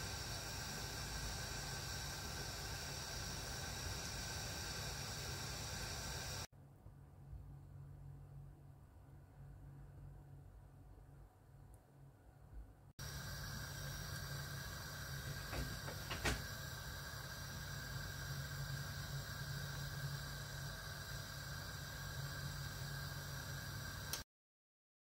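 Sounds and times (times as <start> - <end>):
gas stove burner hissing: 0.0 - 6.5, 13.0 - 24.3.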